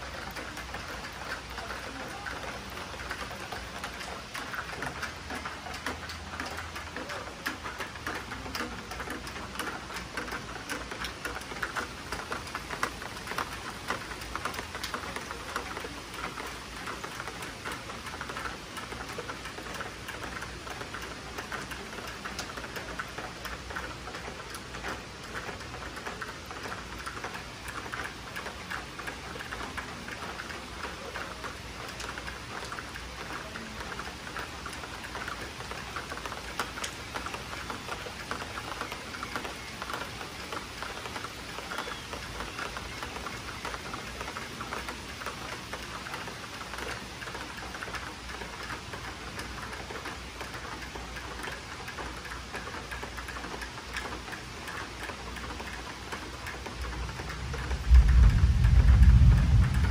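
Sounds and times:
rain pattering: 0.0 - 59.9
raindrops ticking on surfaces: 0.0 - 59.9.

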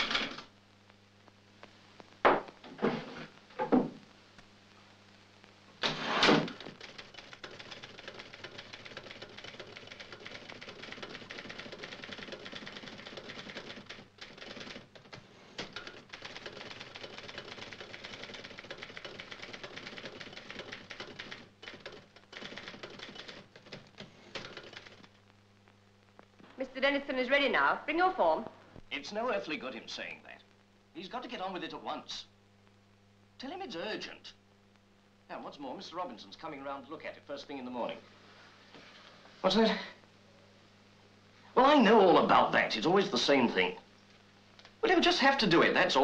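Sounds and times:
manual typewriter clatter: 5.8 - 25.1.

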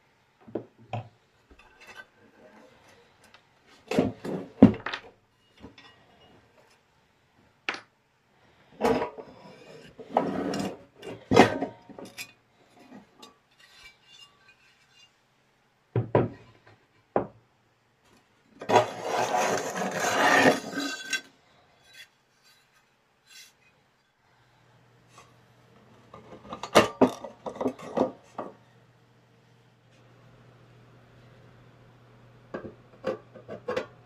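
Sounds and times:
metal scraping and rubbing: 8.8 - 15.2, 18.6 - 23.8.

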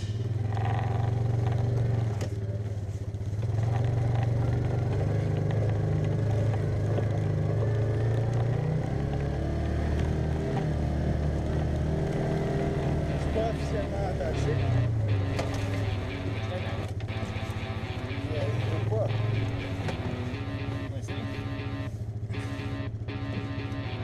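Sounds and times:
vehicle rattles and scrapes: 0.0 - 14.5
utility vehicle engine running: 0.0 - 24.0.

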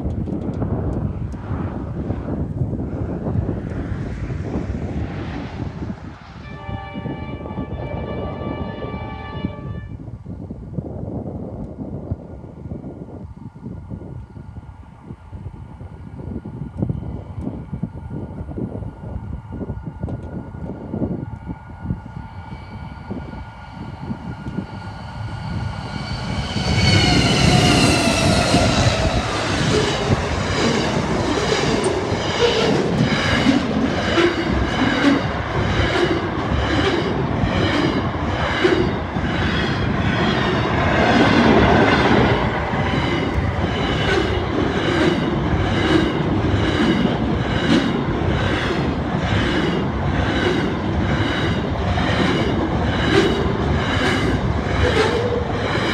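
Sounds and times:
diesel locomotives passing: 0.0 - 10.2, 10.8 - 55.9
whining tone dropping in pitch: 24.5 - 33.5
train wheel clatter: 26.4 - 55.9.

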